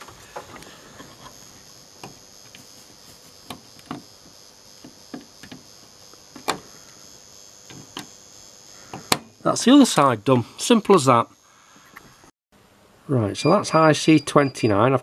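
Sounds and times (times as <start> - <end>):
small clicks of soldering tools: 3.4 - 6.7.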